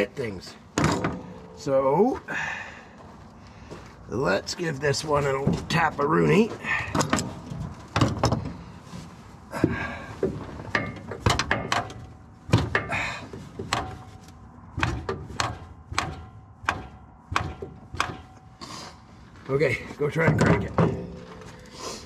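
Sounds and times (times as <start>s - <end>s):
tapping on engine parts: 9.6s - 18.6s.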